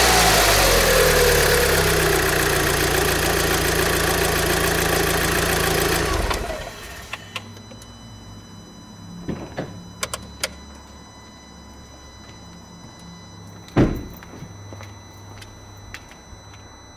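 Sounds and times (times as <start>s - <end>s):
car engine idling and spinning down: 0.0s - 7.2s
loud thump: 9.2s - 9.8s, 13.8s - 14.2s.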